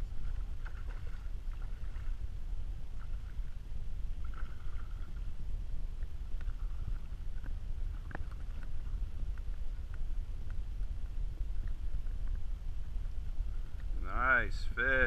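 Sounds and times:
wind buffeting microphone: 0:00.0 - 0:15.0
faint light ticks: 0:05.9 - 0:14.0.

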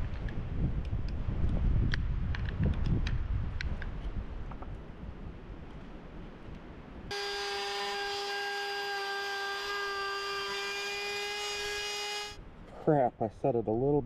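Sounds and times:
wind rumble on microphone: 0:00.0 - 0:07.1
trim router whining: 0:07.1 - 0:12.4.

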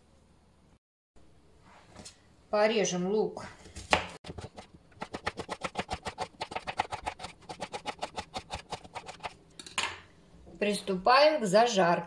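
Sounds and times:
knife chopping onion on board: 0:03.9 - 0:09.4.

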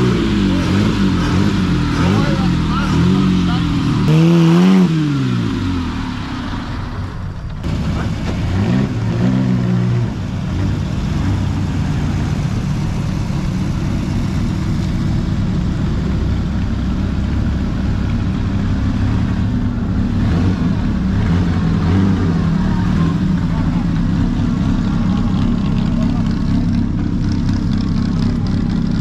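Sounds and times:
racing car engines revving: 0:00.0 - 0:29.0.

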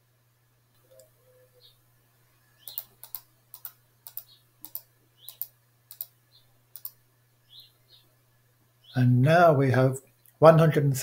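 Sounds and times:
computer mouse button clicking: 0:02.6 - 0:06.1, 0:06.8 - 0:07.0.

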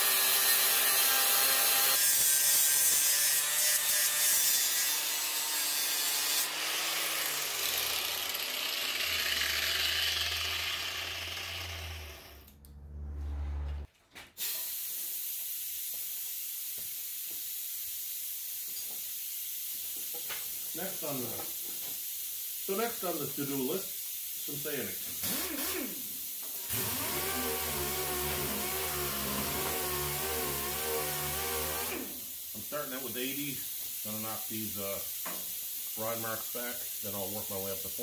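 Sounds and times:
angle grinder grinding metal: 0:00.0 - 0:12.6, 0:25.2 - 0:32.3
motor winding down: 0:07.4 - 0:13.9, 0:26.6 - 0:32.2
background noise: 0:12.4 - 0:38.0.

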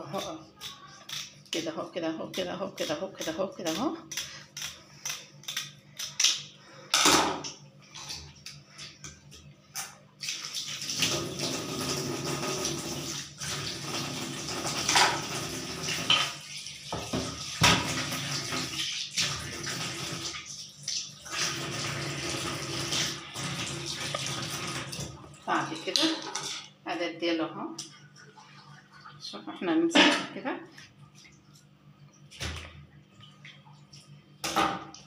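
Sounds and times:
scissors snipping fish skin: 0:04.1 - 0:06.4.

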